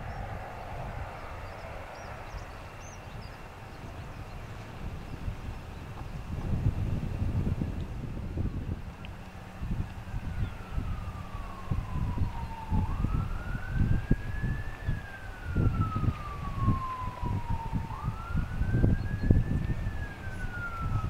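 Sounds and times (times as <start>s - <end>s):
wind buffeting microphone: 0.0s - 21.0s
siren wailing: 8.6s - 21.0s.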